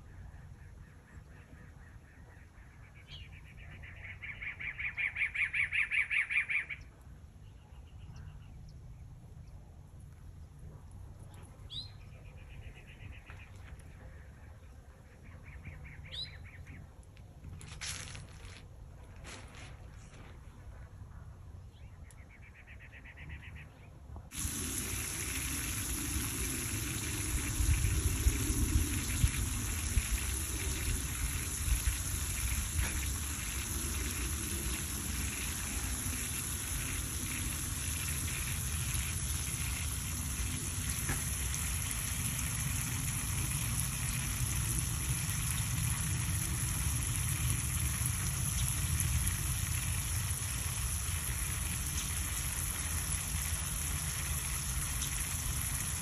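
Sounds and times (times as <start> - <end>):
outdoor background hiss: 21.4 - 56.0.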